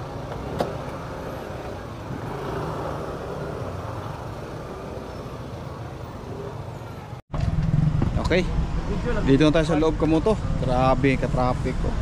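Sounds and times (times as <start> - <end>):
road traffic engine rumble: 0.0 - 12.0.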